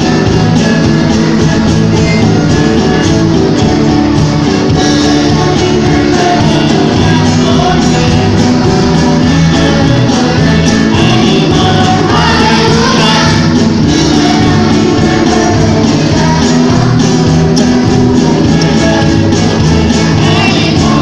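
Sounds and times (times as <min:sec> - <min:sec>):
acoustic guitars: 0:00.0 - 0:21.0
drums: 0:00.0 - 0:21.0
electric bass: 0:00.0 - 0:21.0
keyboard: 0:00.0 - 0:21.0
violins: 0:00.0 - 0:21.0
girls singing together: 0:05.0 - 0:21.0.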